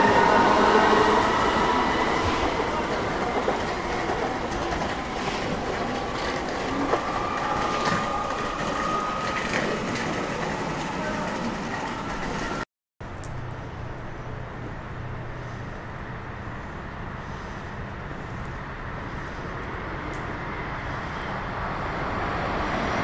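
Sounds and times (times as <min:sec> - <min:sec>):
rail noise: 0:00.0 - 0:23.0
wheels clicking over rail joints: 0:02.4 - 0:13.6.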